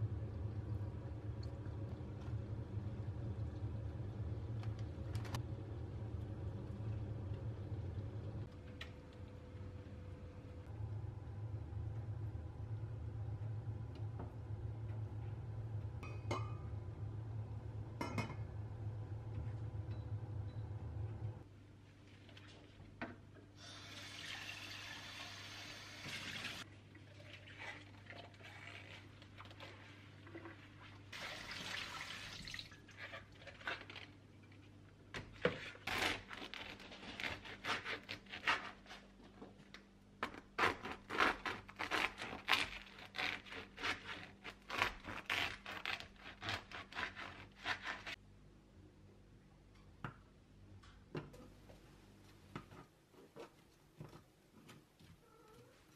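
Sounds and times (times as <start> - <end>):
knife sawing crusty bread: 35.8 - 39.1, 40.6 - 48.2.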